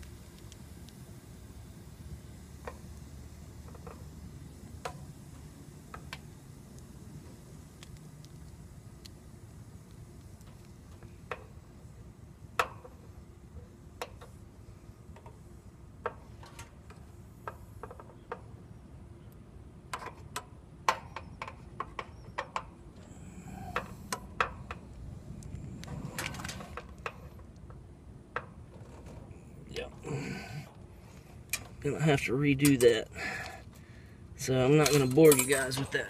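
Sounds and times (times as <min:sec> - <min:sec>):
rustling and scraping: 0:25.5 - 0:27.5, 0:28.7 - 0:29.4
hand tools tapping metal pipe: 0:34.8 - 0:36.0.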